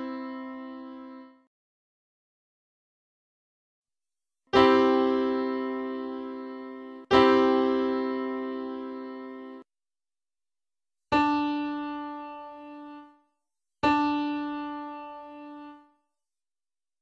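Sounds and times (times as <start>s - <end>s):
piano chord ringing: 4.6s - 9.6s.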